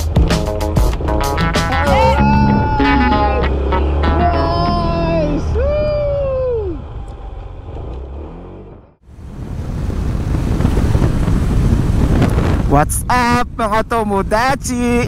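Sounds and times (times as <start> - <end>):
music intro: 0.0 - 5.5
scooter road and engine noise: 0.0 - 12.7
sliding tone: 1.0 - 5.3
wind rush on microphone: 9.1 - 15.0.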